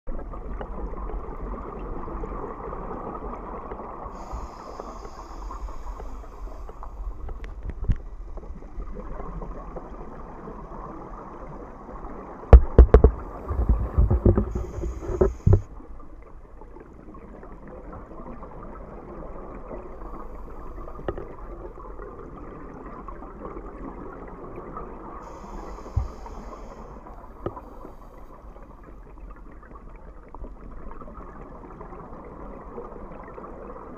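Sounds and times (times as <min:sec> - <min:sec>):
muffled underwater rush: 0:00.1 - 0:33.9
regulator inhale hiss: 0:04.1 - 0:07.3, 0:13.3 - 0:15.7, 0:19.9 - 0:21.1, 0:25.2 - 0:28.7
exhaled bubbles burbling: 0:07.4 - 0:15.9.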